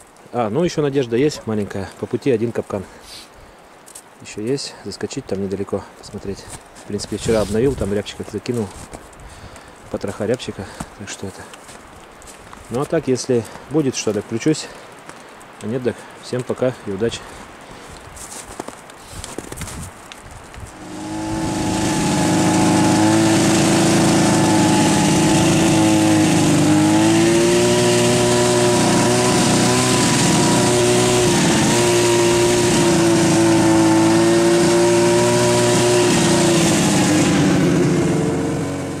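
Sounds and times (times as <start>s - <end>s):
snowmobile engine running: 20.7s - 39.0s.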